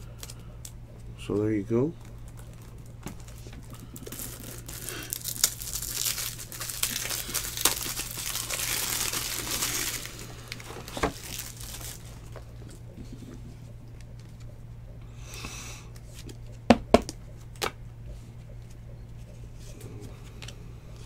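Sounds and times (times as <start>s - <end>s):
low electrical hum: 0.0s - 21.0s
thin plastic crinkling: 2.0s - 13.3s.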